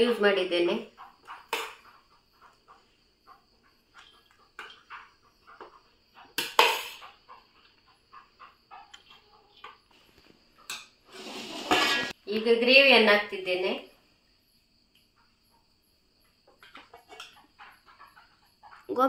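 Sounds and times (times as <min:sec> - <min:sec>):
metal skimmer scraping rice: 0:11.1 - 0:12.2.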